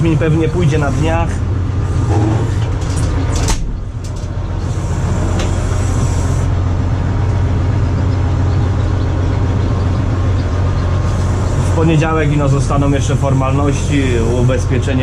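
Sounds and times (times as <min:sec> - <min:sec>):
diesel engine running: 0:00.0 - 0:15.0.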